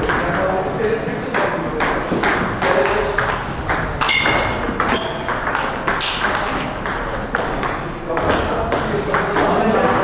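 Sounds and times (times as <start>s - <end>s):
table tennis ball clicking: 1.8s - 8.5s
high squeak: 4.1s - 5.4s.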